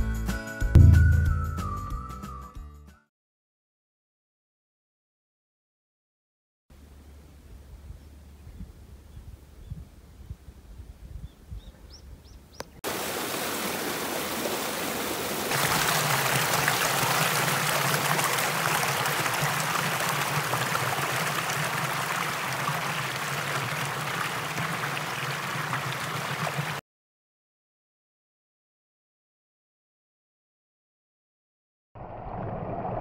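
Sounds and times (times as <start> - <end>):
water rushing over stones: 12.8 - 26.8.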